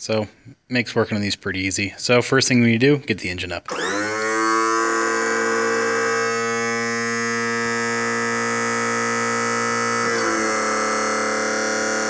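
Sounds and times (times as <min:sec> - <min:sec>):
electric motor and pump whine: 0:03.7 - 0:12.0.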